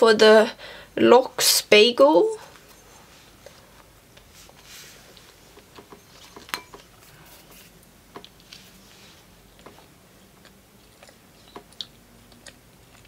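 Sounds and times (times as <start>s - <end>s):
biting and chewing food: 7.7s - 13.0s.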